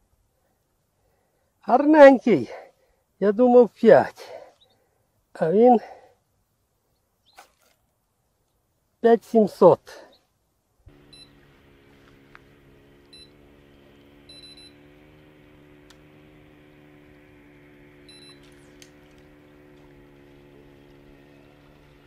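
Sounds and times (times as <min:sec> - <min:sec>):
faint low hum: 0:10.8 - 0:22.0
bite alarm beeps: 0:11.1 - 0:11.3, 0:13.1 - 0:13.4, 0:14.3 - 0:14.8, 0:18.0 - 0:18.5.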